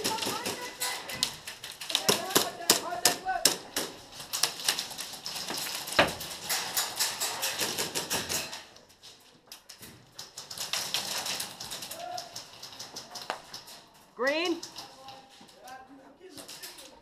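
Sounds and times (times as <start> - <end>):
airsoft guns firing: 0.0 - 8.5.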